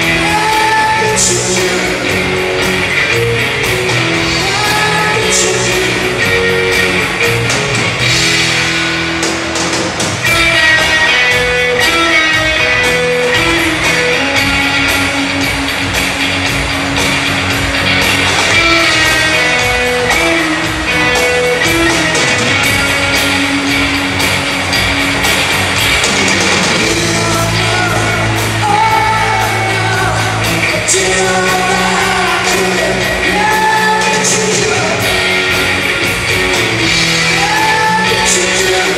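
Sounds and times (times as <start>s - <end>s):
bass guitar: 0.0s - 38.9s
drum kit: 0.0s - 38.9s
electric guitars: 0.0s - 38.9s
keyboards: 0.0s - 38.9s
person singing long notes: 4.2s - 7.3s, 26.8s - 35.1s.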